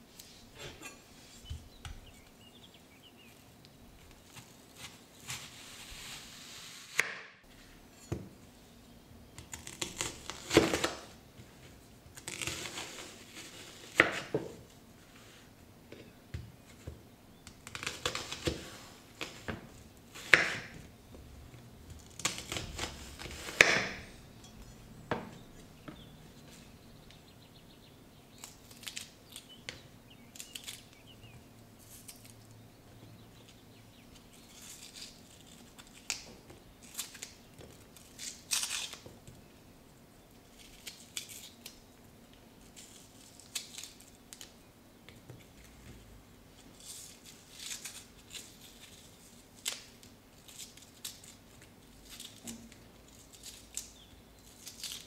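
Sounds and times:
onion layers crackling and snapping: 0:09.3 - 0:11.2, 0:12.1 - 0:14.6, 0:17.4 - 0:24.3, 0:28.2 - 0:32.6, 0:33.4 - 0:39.4, 0:40.5 - 0:44.6, 0:46.6 - 0:55.0
knife cutting onion on wooden board: 0:12.3 - 0:14.6, 0:20.1 - 0:20.8, 0:22.1 - 0:25.4.

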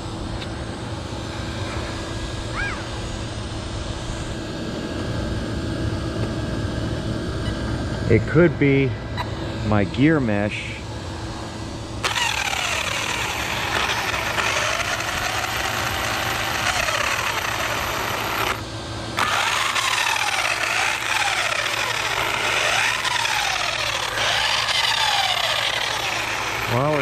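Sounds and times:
electric motor whine revving: 0:10.8 - 0:27.0.

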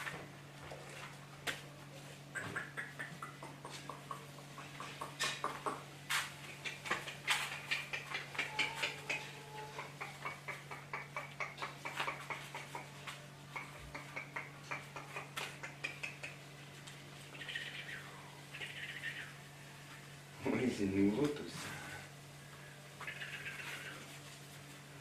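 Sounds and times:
low steady hum: 0:00.0 - 0:25.0.

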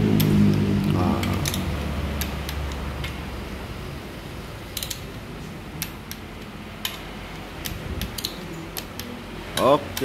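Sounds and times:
torque wrench clicking: 0:01.2 - 0:03.2, 0:04.7 - 0:05.0, 0:05.8 - 0:10.0.

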